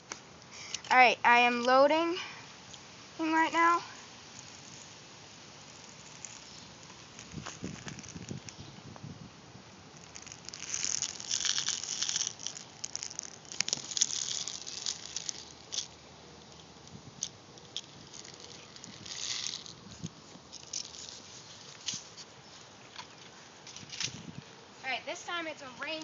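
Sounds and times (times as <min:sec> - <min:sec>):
plastic pellets rattling into magazine: 0:10.0 - 0:16.6, 0:17.2 - 0:19.8.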